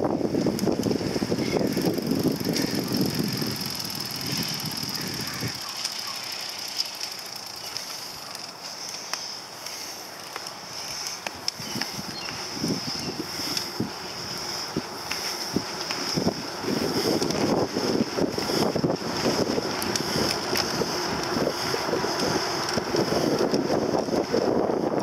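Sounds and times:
wind: 0.0 - 25.0
drivetrain clicks and ticks: 15.0 - 24.5.

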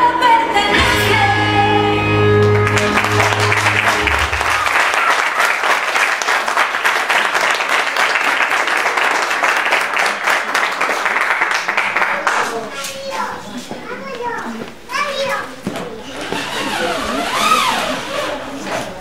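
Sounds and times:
recorded song: 0.0 - 4.7
congregation clapping: 2.4 - 12.9.

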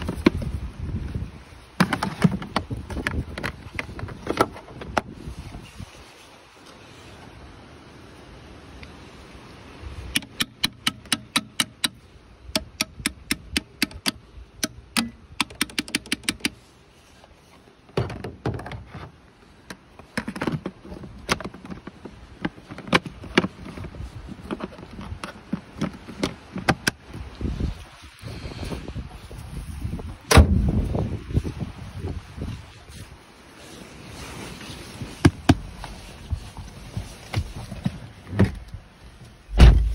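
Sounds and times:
metal tool tapping on metal: 10.2 - 12.0, 12.6 - 16.5.

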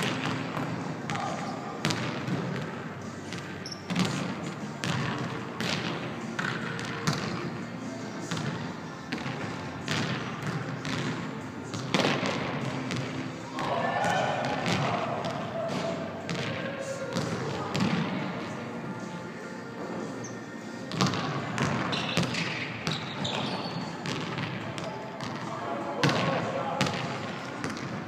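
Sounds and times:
basketballs bouncing on wooden floor: 3.9 - 7.4, 9.1 - 13.1, 20.9 - 25.4.

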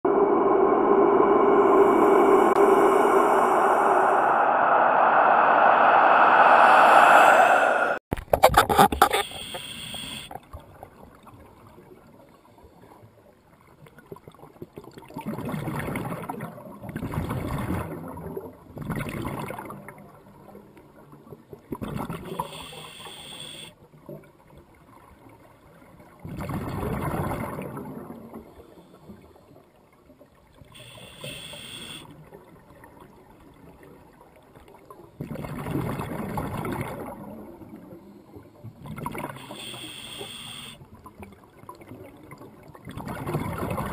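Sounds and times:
regulator hissing inhales: 22.4 - 23.7, 30.8 - 32.0, 39.4 - 40.8
exhaled bubbles rushing: 41.9 - 43.9.

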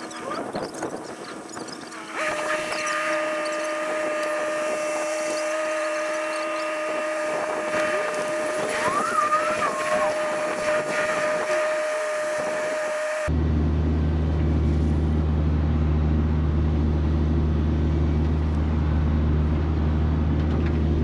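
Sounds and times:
mini excavator whining: 0.0 - 13.4.

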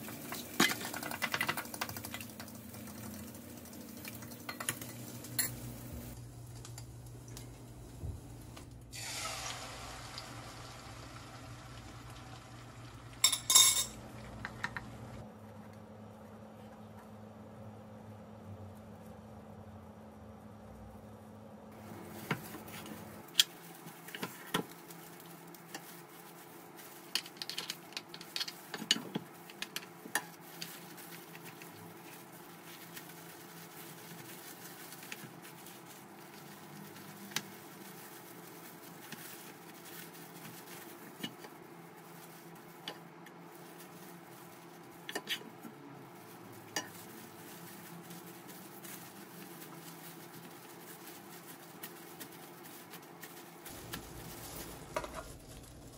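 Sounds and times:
plastic gloves rustling: 18.4 - 55.9.

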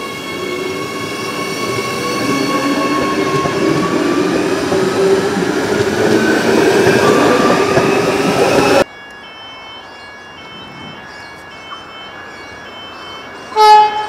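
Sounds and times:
train wheels rumbling on rail: 0.0 - 8.8
high-pitched train whine: 0.0 - 14.0.

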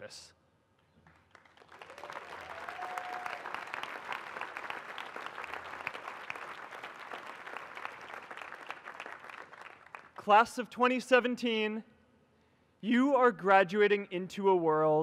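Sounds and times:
large crowd applauding: 1.0 - 10.3.

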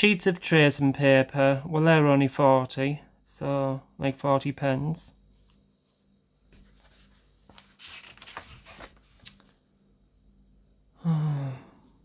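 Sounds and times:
paper rustling: 5.3 - 9.6
page flicking: 7.5 - 9.6.

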